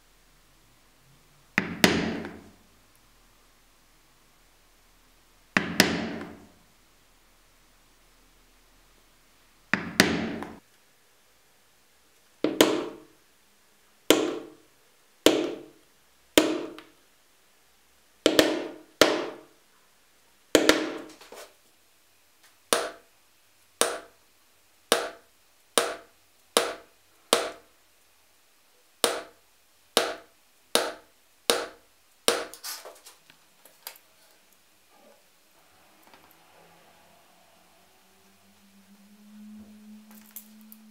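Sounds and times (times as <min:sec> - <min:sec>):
mallet striking leather punch: 0:01.6 - 0:02.4, 0:05.6 - 0:06.4, 0:09.7 - 0:10.5, 0:12.4 - 0:13.1, 0:14.1 - 0:14.6, 0:15.3 - 0:15.7, 0:16.4 - 0:16.8, 0:18.3 - 0:19.5, 0:20.6 - 0:21.1, 0:22.7 - 0:23.0, 0:23.8 - 0:24.1, 0:24.9 - 0:25.2, 0:25.8 - 0:27.6, 0:29.0 - 0:29.4, 0:30.0 - 0:32.6.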